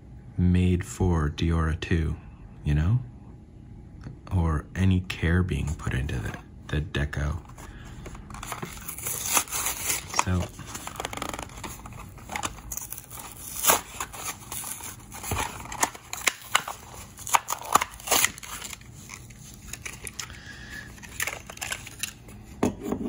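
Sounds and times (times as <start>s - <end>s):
cardboard tearing: 8.3s - 20.3s, 20.9s - 22.2s
plastic blister crackling: 8.3s - 20.3s.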